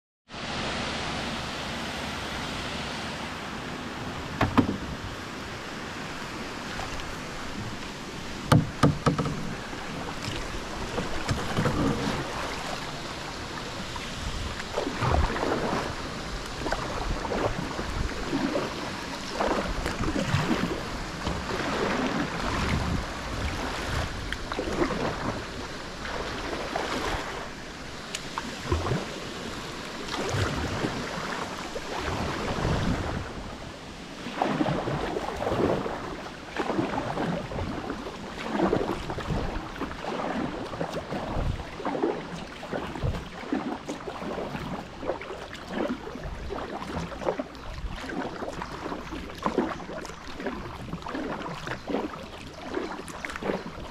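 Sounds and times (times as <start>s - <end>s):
paddle strokes splashing: 0.3s - 53.9s
rushing water: 0.3s - 53.9s
sharp knocks: 4.4s - 5.0s, 8.5s - 9.5s.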